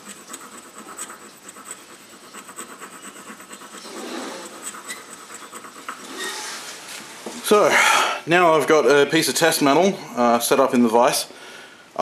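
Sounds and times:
steel scraping on stone: 0:01.7 - 0:07.0.

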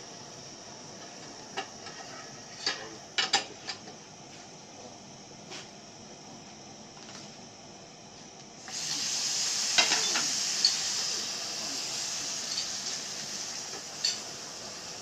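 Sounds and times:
crepe sizzling in a hot pan: 0:08.6 - 0:15.0.

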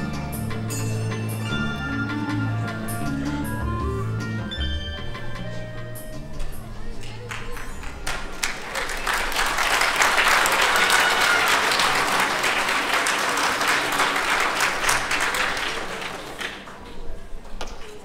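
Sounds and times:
audience applauding: 0:07.0 - 0:16.9.

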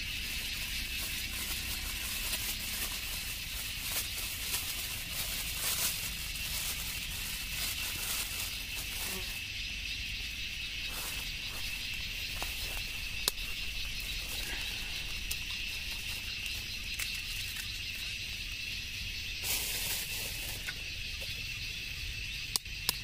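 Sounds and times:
plastic bag rustling: 0:00.0 - 0:09.4, 0:10.9 - 0:18.0, 0:19.4 - 0:20.7
high-pitched insect drone: 0:00.0 - 0:23.0
sharp clicks: 0:22.5 - 0:23.0.

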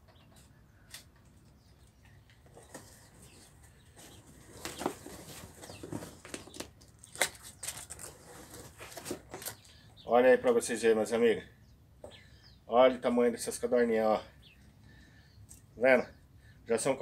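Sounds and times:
cardboard rustling and knocking: 0:02.5 - 0:09.5
birds fluttering in a box: 0:02.5 - 0:09.7.

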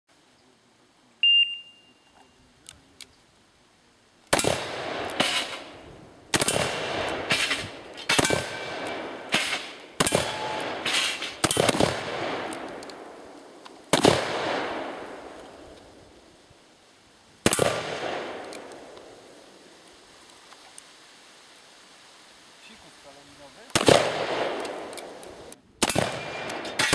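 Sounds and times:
revolver shots echoing: 0:04.4 - 0:13.2.

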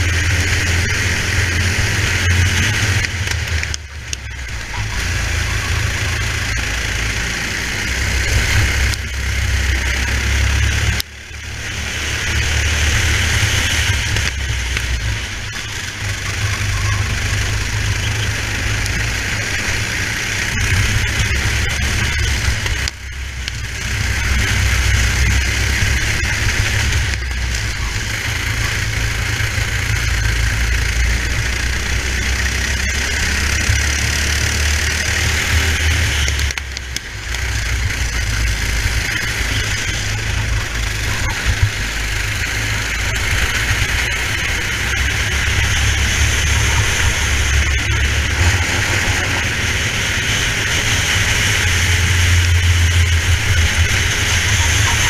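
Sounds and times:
kart engine racing: 0:00.0 - 0:55.0
wind: 0:00.0 - 0:55.0.

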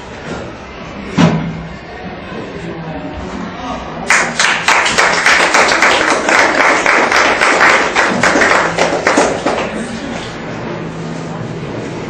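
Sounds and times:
audience applause: 0:04.1 - 0:09.8.

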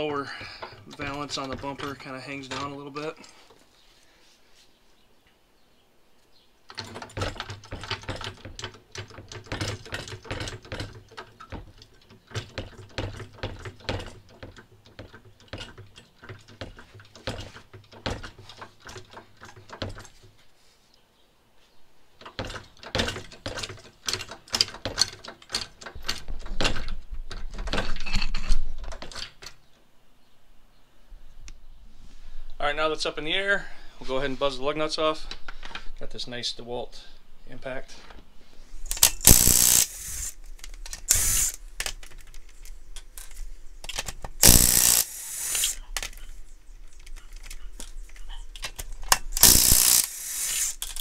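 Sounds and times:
floor jack pumping clicks: 0:38.9 - 0:46.2, 0:46.9 - 0:51.0.

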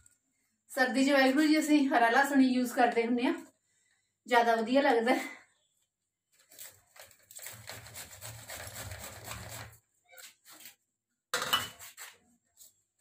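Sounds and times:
cauliflower grating on metal grater: 0:06.4 - 0:10.8.

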